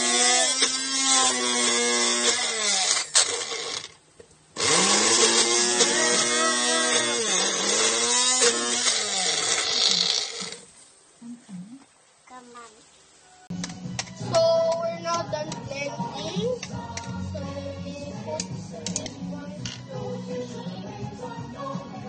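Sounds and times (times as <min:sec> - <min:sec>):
blender motor whirring: 0:00.0 - 0:04.0, 0:04.6 - 0:10.7.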